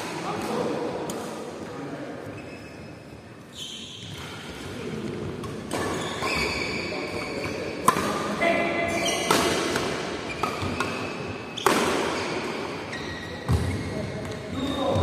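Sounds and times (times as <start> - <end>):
rackets striking shuttlecock: 7.8 - 8.3, 9.2 - 12.6.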